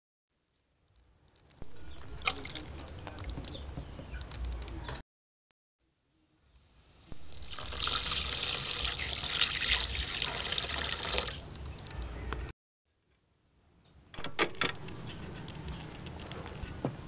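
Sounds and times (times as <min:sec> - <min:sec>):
water pouring into a metal wok: 0:07.2 - 0:11.4.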